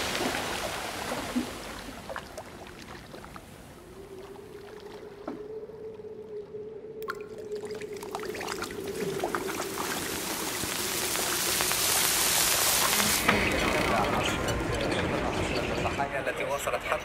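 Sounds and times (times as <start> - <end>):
waves washing: 0.0 - 6.4, 7.1 - 16.3
small water blips: 0.0 - 13.2.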